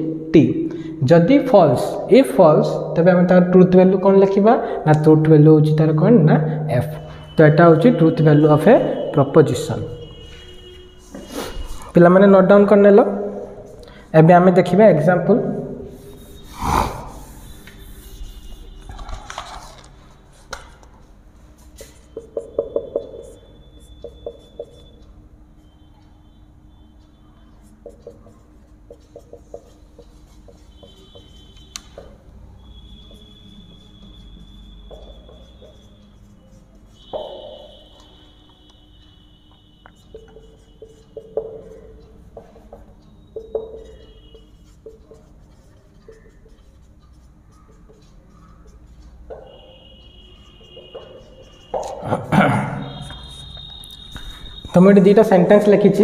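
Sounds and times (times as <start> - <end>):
marker squeaking on whiteboard: 6.8 - 14.0, 15.5 - 26.2, 27.0 - 56.0
marker tapping on whiteboard: 21.8 - 25.0, 27.7 - 32.2, 34.8 - 35.9, 36.8 - 38.2, 39.9 - 49.9, 50.6 - 52.1.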